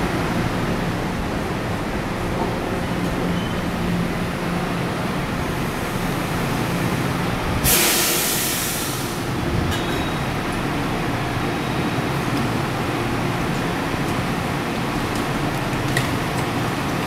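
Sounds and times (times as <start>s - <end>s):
electric train rumbling and humming: 0.0s - 17.0s
air brakes hissing: 7.6s - 9.3s.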